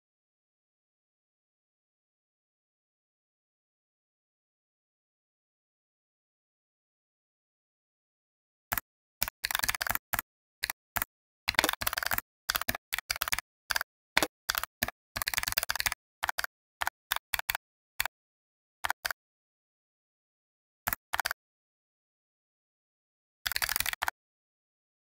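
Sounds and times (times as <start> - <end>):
computer keyboard typing: 8.7 - 18.1, 18.8 - 19.2, 20.9 - 21.4, 23.5 - 24.2.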